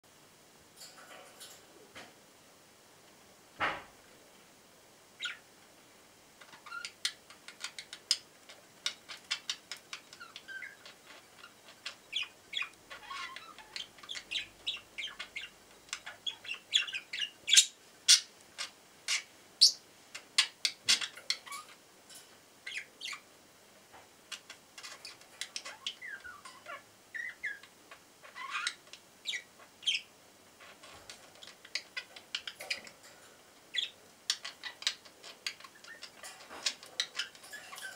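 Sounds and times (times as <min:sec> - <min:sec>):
budgerigars chattering: 0:06.5 - 0:19.8, 0:24.8 - 0:30.1, 0:33.7 - 0:37.9.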